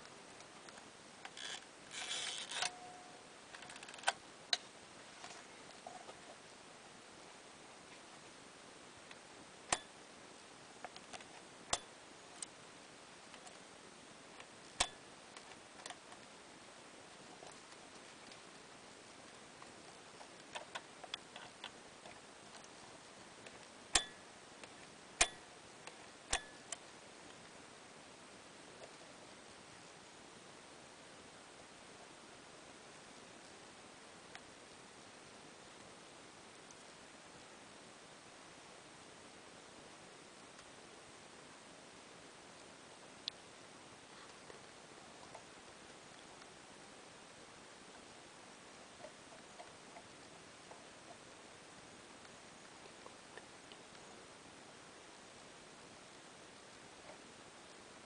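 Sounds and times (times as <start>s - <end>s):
camera winding ratchet: 1.4s - 2.7s.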